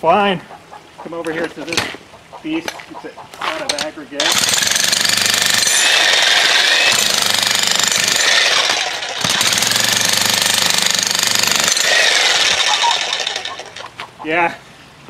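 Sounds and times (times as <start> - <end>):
jackhammer pounding concrete: 4.2 - 13.9.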